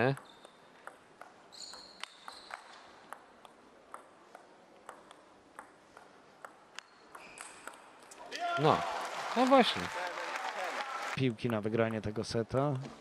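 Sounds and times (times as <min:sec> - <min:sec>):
table tennis ball clicking: 0:00.1 - 0:08.1.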